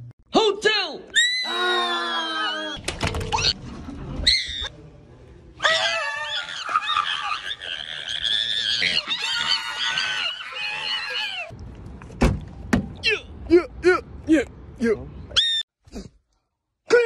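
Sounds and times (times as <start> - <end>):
high-pitched screaming voice: 1.2 - 2.8.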